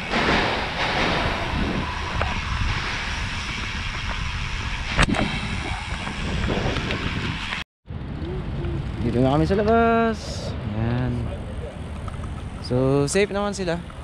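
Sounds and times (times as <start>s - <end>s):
bike tyres rolling: 0.0s - 10.4s
wind buffeting microphone: 0.0s - 14.0s.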